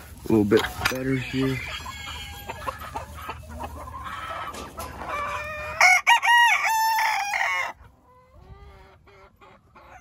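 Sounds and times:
chickens clucking: 0.0 - 10.0
rooster crowing: 5.7 - 7.8.

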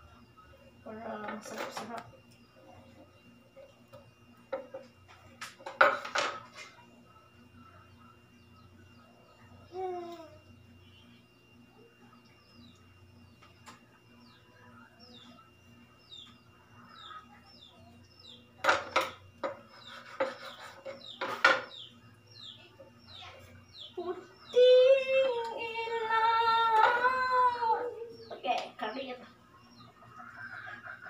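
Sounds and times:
bird chirping: 10.5 - 18.6, 19.4 - 31.0
woman singing long notes: 24.0 - 28.2.

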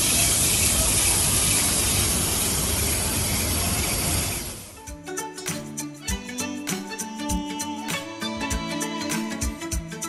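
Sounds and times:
steady beat: 4.8 - 10.0.

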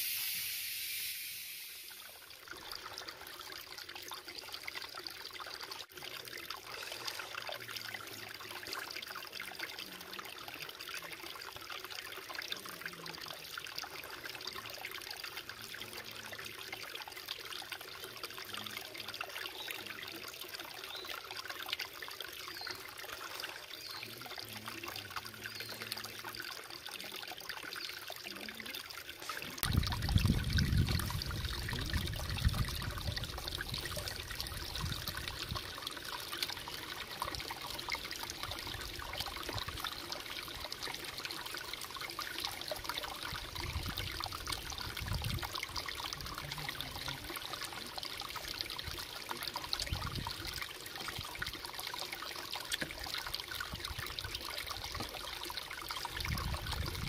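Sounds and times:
water trickling and splashing: 0.0 - 57.0.

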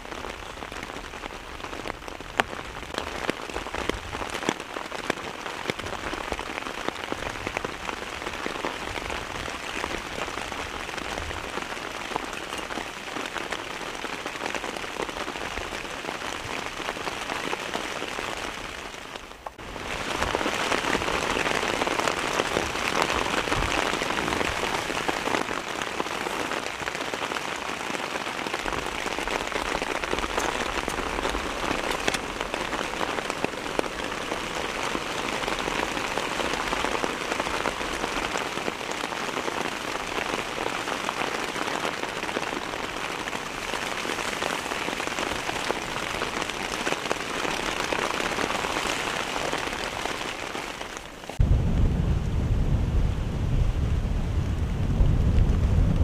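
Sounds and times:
heavy rain falling: 0.0 - 56.0.

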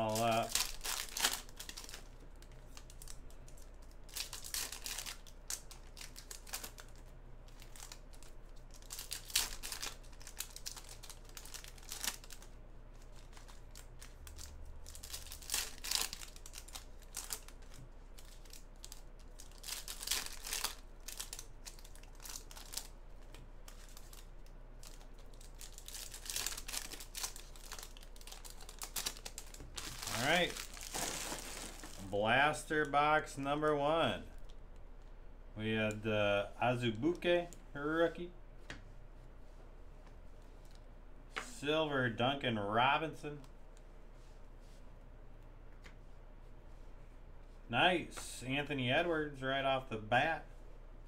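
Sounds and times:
foil wrappers crinkling and tearing: 0.0 - 23.0, 23.6 - 32.1.

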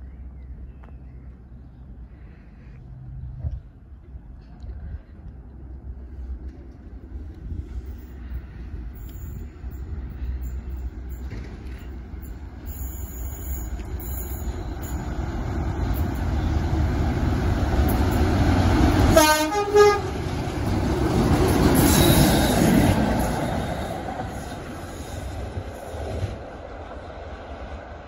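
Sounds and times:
diesel locomotive engine rumble: 0.0 - 28.0
two-note train horn: 19.1 - 20.2.

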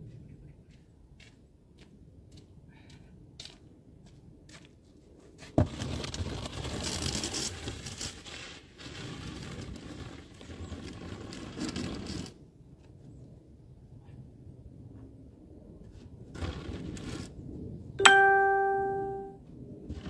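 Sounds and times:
snow shovel scraping pavement: 5.4 - 12.4, 16.3 - 17.4.

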